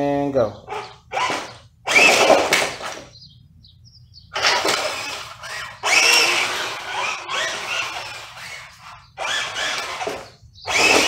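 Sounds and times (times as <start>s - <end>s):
toy tank tracks and motors grinding: 0.7s - 3.1s, 4.3s - 11.0s.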